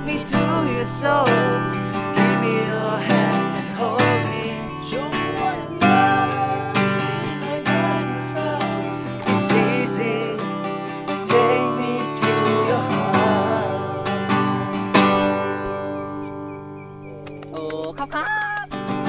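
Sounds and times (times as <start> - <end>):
person singing: 0.0 - 14.8
acoustic guitar strumming: 0.0 - 17.4, 18.0 - 19.0.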